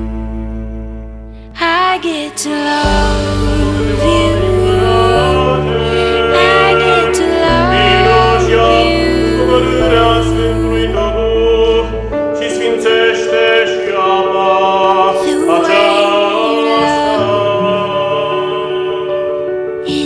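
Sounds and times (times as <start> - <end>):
person singing slow song: 1.5 - 20.0
held bass note: 2.8 - 12.3.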